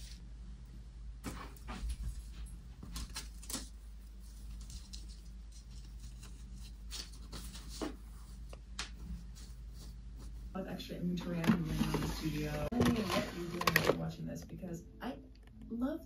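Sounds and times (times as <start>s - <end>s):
low steady hum: 0.0s - 16.0s
tissue paper and fabric rustling: 11.4s - 14.0s.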